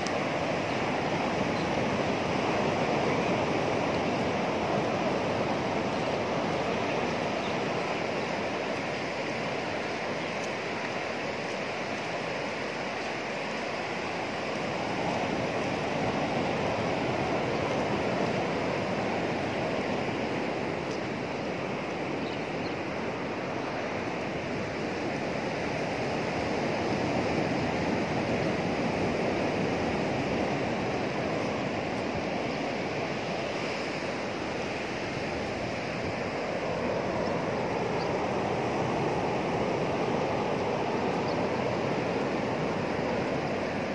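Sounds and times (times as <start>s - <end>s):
waves breaking on a beach: 0.0s - 43.9s.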